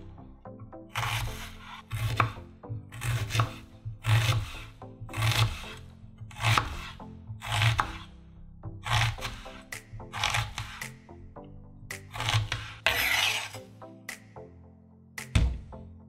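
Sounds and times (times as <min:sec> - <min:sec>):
knife slicing through onion: 0:00.9 - 0:08.1, 0:08.8 - 0:11.0, 0:11.9 - 0:13.7
knife knocking on cutting board: 0:15.3 - 0:15.7.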